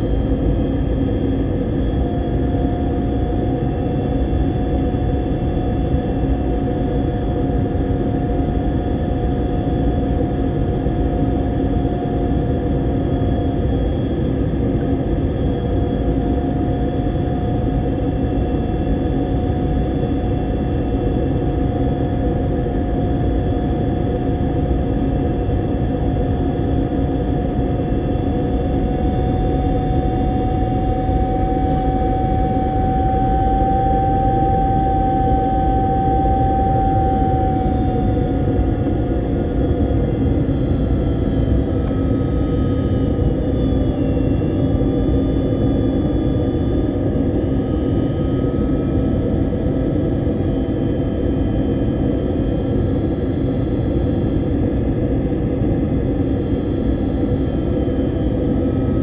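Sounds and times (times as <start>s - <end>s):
high engine whine: 0.0s - 59.0s
airliner cabin engine rush: 24.6s - 59.0s
low hum: 27.9s - 50.3s.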